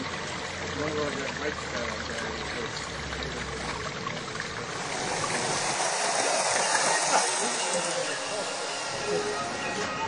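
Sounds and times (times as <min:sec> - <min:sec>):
water trickling and splashing: 0:00.0 - 0:10.0.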